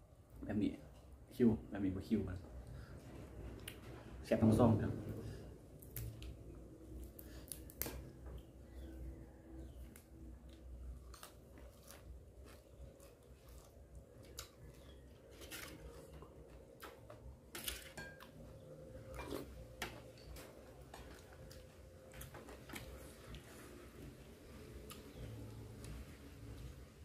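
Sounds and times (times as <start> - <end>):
person chewing: 10.4 - 17.3.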